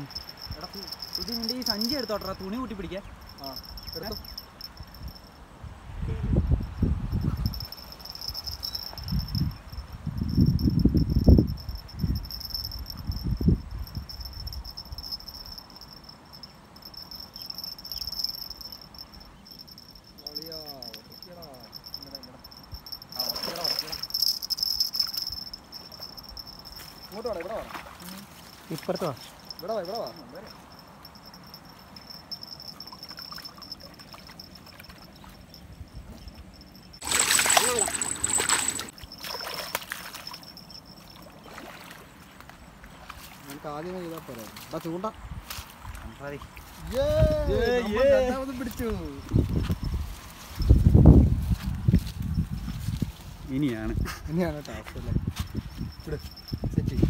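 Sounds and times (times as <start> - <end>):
insects trilling: 0.0 - 5.7, 6.6 - 53.6, 55.2 - 56.8
faint water sounds: 7.1 - 49.2
small ticks: 20.8 - 23.2.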